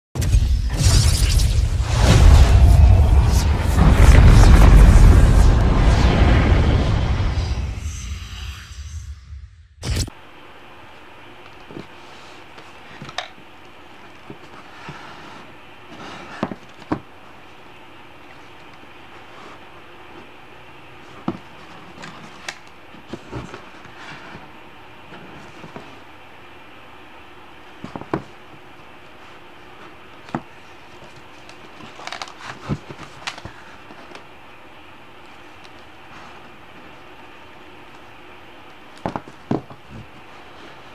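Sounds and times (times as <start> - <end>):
steady low hiss: 0.2 - 9.5.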